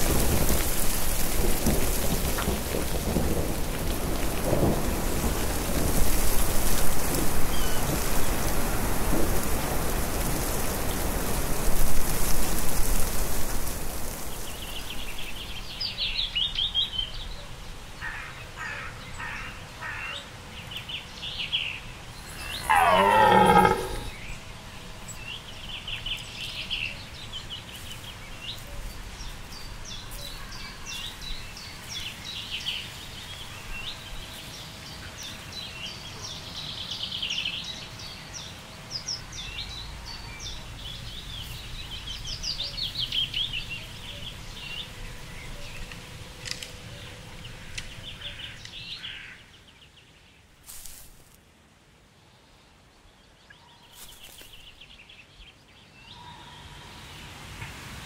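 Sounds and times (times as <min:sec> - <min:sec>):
rain falling: 0:00.0 - 0:16.0, 0:22.0 - 0:24.2
small birds chirping: 0:20.7 - 0:24.4, 0:52.5 - 0:57.1
deer stag roaring: 0:22.3 - 0:24.2.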